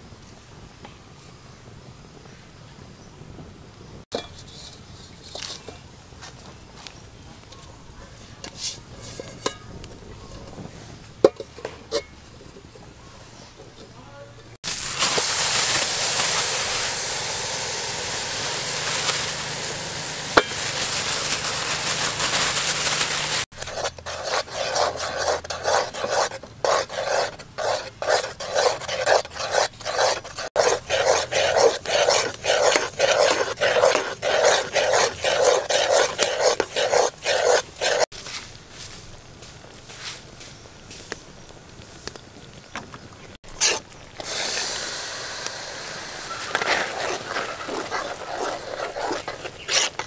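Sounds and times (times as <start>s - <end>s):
metal spoon scraping a pot: 4.1s - 5.8s, 8.5s - 9.8s, 21.8s - 38.1s, 46.2s - 50.0s
paste sizzling in a pot: 14.6s - 38.2s, 43.5s - 50.0s.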